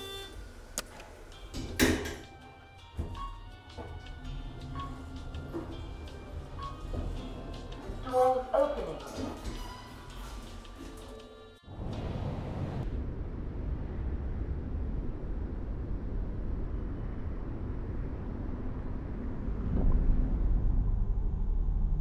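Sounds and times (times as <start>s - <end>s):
low rumbling outdoor noise: 11.7s - 22.0s.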